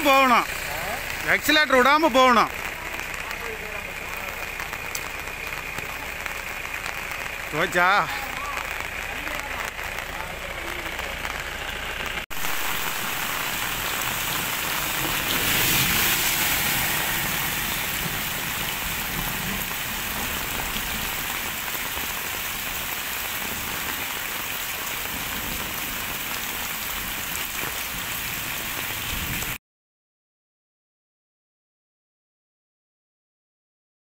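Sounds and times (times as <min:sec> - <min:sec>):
heavy rain on pavement: 0:00.0 - 0:29.6.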